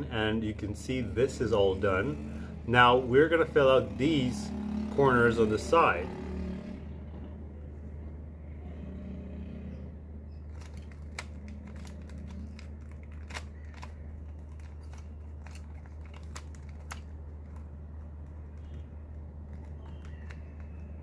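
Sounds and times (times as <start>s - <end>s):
puzzle cube clicking: 10.5s - 21.0s.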